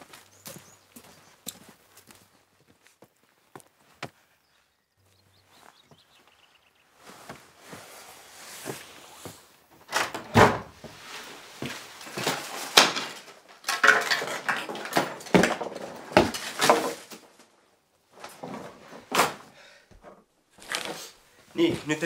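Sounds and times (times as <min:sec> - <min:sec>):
rustling: 0:05.0 - 0:10.1, 0:10.7 - 0:19.4, 0:20.5 - 0:22.0
knocks and clatter in wooden wardrobe: 0:09.9 - 0:11.0, 0:13.8 - 0:17.1.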